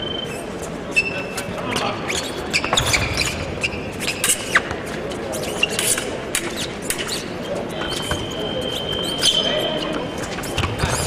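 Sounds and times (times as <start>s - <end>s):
large hall background noise: 0.0s - 11.0s
shoes squeaking: 0.0s - 11.0s.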